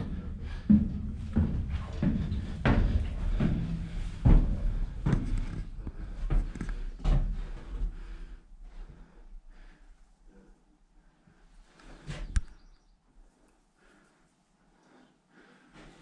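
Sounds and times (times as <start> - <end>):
footsteps on wooden floor: 0.0 - 8.1.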